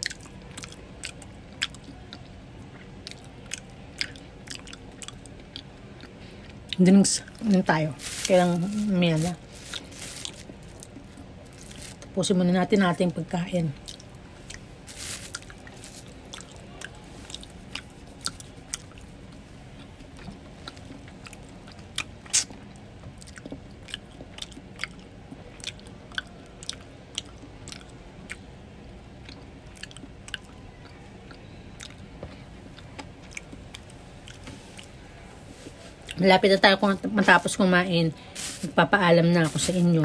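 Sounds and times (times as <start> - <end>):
chewing fries: 0.0 - 12.4, 13.0 - 36.3, 37.2 - 40.0
wet mouth clicks and smacks: 22.3 - 22.6.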